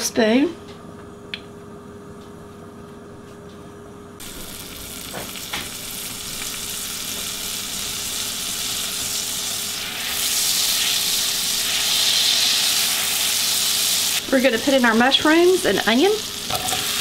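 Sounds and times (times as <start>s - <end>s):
butter sizzling in a skillet: 4.2s - 17.0s.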